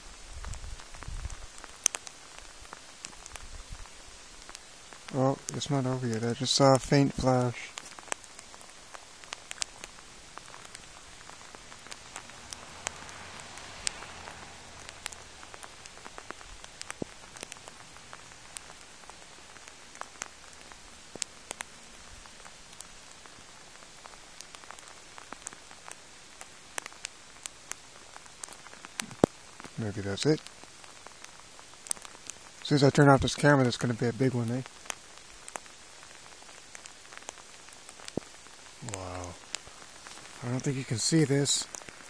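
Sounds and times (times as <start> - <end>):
light rain falling: 0.0 - 42.0
raindrops ticking: 0.0 - 42.0.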